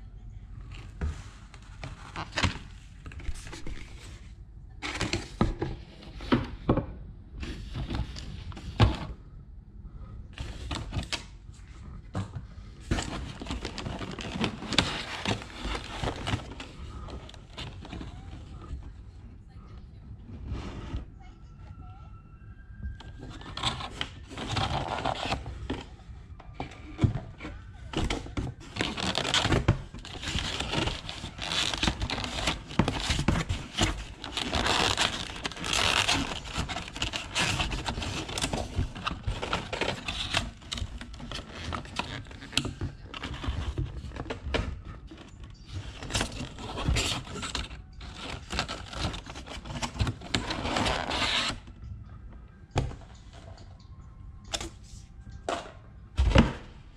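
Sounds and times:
plastic containers crinkling: 0:12.8 - 0:18.8, 0:26.5 - 0:51.8
plastic scraping against cardboard: 0:12.8 - 0:18.9, 0:23.2 - 0:25.9, 0:26.6 - 0:51.7.

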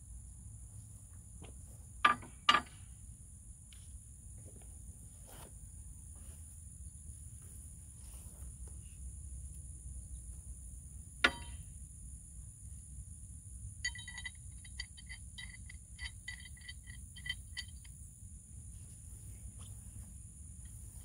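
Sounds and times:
insect drone: 0:00.0 - 0:21.0
metallic clink: 0:11.2 - 0:11.7, 0:13.8 - 0:18.0
high chirping clicks: 0:13.8 - 0:18.0.

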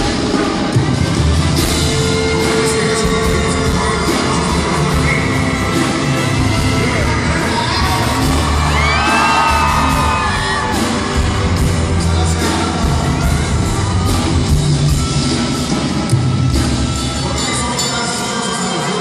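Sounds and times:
band with trumpets and violins: 0:00.0 - 0:19.0
man singing into a microphone: 0:02.1 - 0:14.0
crowd yelling and whooping: 0:07.4 - 0:15.8.

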